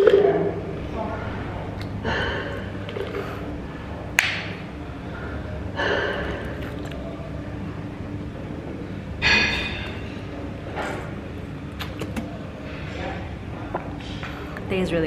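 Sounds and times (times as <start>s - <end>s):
person drinking from plastic bottle: 2.8s - 3.4s, 6.2s - 7.0s, 11.7s - 12.4s.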